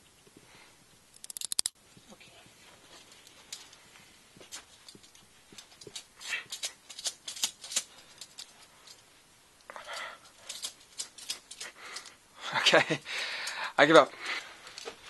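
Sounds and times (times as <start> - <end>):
handcuffs clinking and rattling: 1.1 - 1.8, 2.9 - 3.8, 4.4 - 9.1, 9.8 - 12.2, 14.2 - 15.0.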